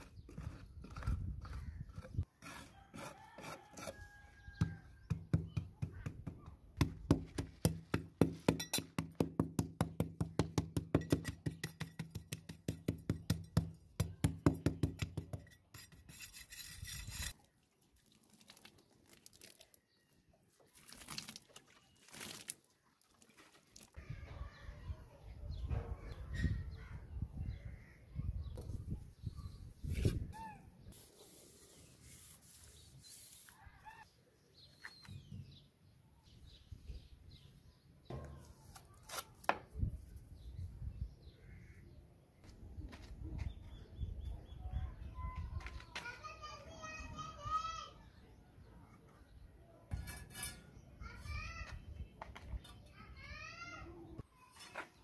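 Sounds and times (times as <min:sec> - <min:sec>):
trowel scraping and knocking bricks: 0:00.0 - 0:04.1, 0:10.5 - 0:17.4, 0:49.9 - 0:50.8, 0:54.5 - 0:55.0
wooden straightedge rasping on mortar: 0:00.0 - 0:04.1, 0:15.1 - 0:17.4, 0:49.9 - 0:50.7.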